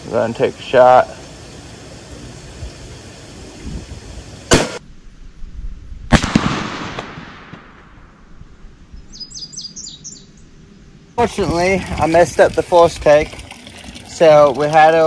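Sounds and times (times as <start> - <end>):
gunshot with rolling echo: 4.5 - 4.8, 6.1 - 8.2
rifle shot crack: 4.5 - 4.8, 6.1 - 8.2.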